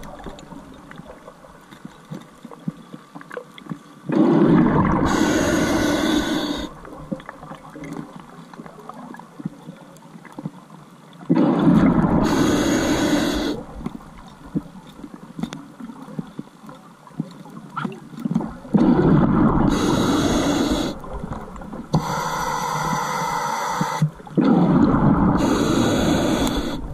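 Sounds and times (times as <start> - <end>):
faint clicks and crackles: 0.0 - 12.2, 13.4 - 26.9
exhaled bubbles rushing underwater: 4.1 - 9.3, 11.2 - 14.8, 17.8 - 22.9, 23.7 - 26.9.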